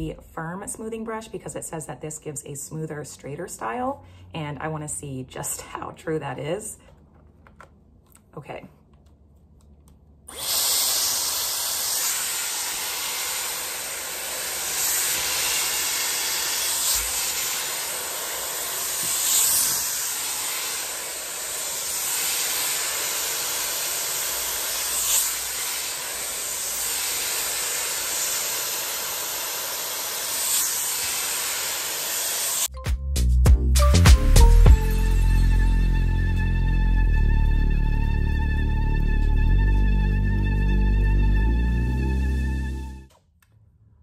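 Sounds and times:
hair styler blowing air: 0:10.3 - 0:32.7.

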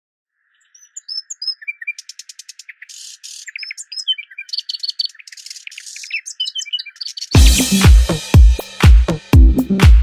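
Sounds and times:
birds chirping: 0:00.3 - 0:08.2.

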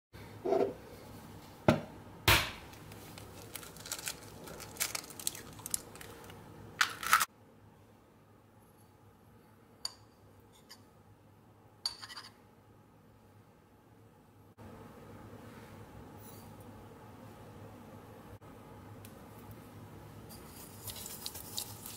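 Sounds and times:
eggshell crackling: 0:02.7 - 0:07.3, 0:20.6 - 0:21.9.

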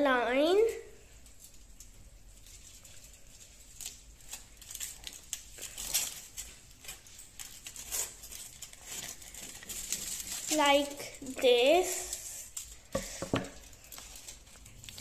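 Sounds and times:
foil crinkling: 0:01.1 - 0:15.0
scissors snipping foil: 0:02.8 - 0:15.0.

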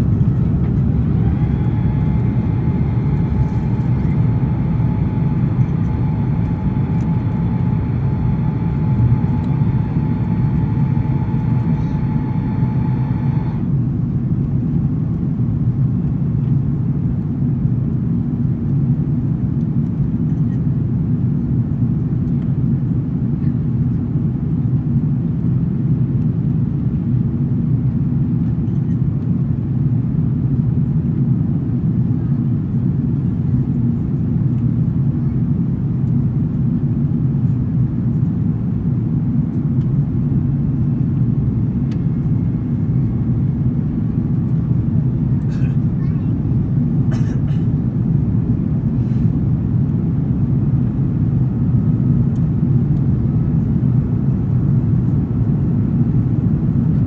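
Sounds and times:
faint steady whine: 0:00.0 - 0:15.5
airplane cabin engine roar: 0:00.0 - 0:57.0.

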